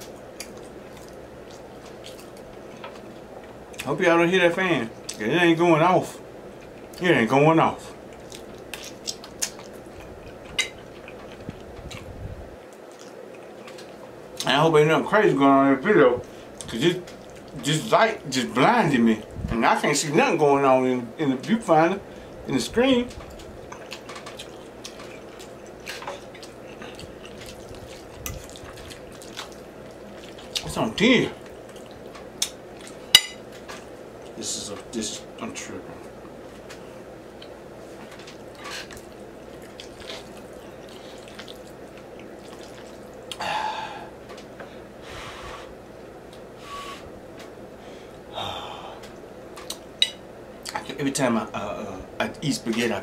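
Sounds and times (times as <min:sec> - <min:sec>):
room fan running: 0:00.0 - 0:53.0
fork squishing through spaghetti: 0:23.7 - 0:30.8, 0:38.3 - 0:43.4
wet slurps of spaghetti: 0:38.6 - 0:43.2.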